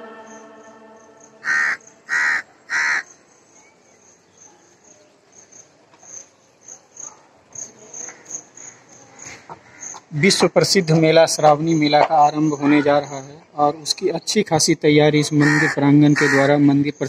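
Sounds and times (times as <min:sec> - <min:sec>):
insect chirping: 0:00.0 - 0:14.6
harsh bird caws: 0:01.4 - 0:03.2, 0:09.5 - 0:10.1, 0:15.4 - 0:16.5.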